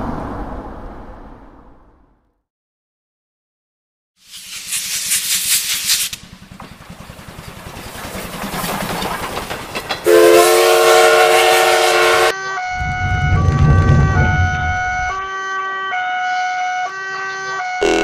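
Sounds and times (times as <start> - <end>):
cartoon steam locomotive chuffing: 4.3 - 14.5
loud steam whistle chord: 10.1 - 12.9
low rumble: 12.7 - 15.2.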